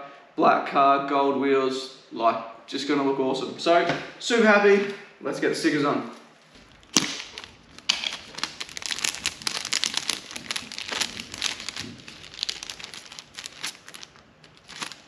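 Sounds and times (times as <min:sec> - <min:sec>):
plastic sheets crinkling: 0:06.4 - 0:15.0.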